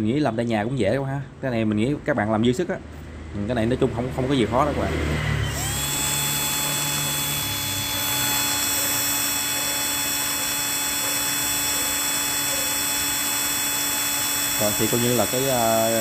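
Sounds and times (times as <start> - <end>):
electric drill motor whining: 5.3 - 16.0
drill bit grinding metal: 5.4 - 16.0.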